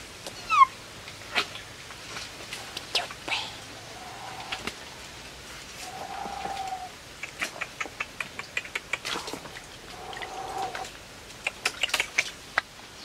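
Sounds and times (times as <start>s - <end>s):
dry leaves crackling underfoot: 1.3s - 6.9s.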